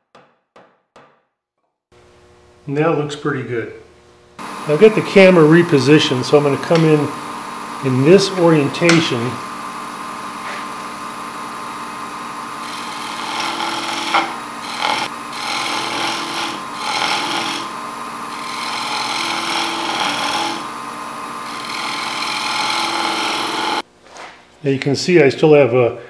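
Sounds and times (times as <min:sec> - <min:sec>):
wood lathe humming: 0:04.4 - 0:23.8
turning tool scraping wood: 0:10.3 - 0:23.8.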